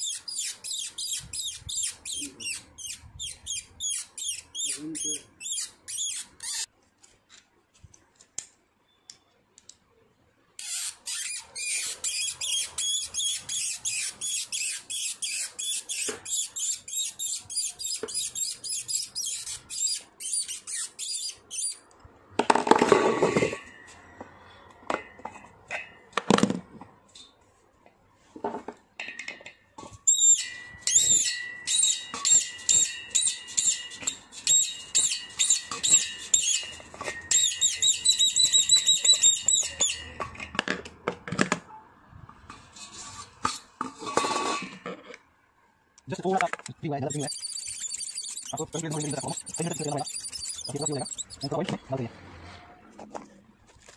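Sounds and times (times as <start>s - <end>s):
mop spindle squeaking: 0.0s - 6.7s, 10.6s - 21.9s, 30.1s - 40.2s, 46.9s - 51.9s
thin whistling tone: 47.1s - 51.8s.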